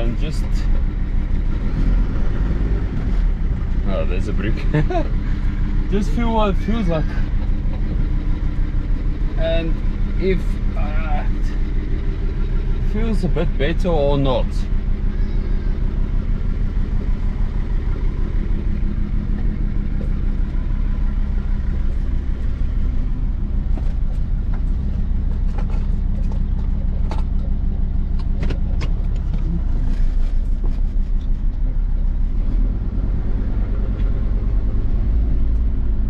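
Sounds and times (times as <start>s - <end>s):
diesel engine running: 0.0s - 36.0s.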